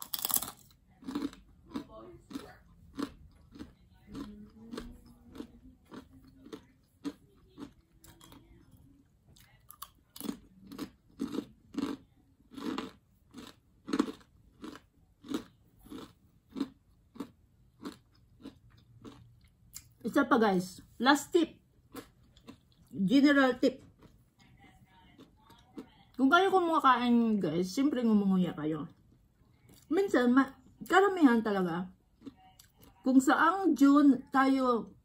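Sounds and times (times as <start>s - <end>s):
person chewing crunchy food: 0.0s - 8.7s, 9.4s - 19.9s, 21.8s - 23.0s, 32.1s - 33.0s.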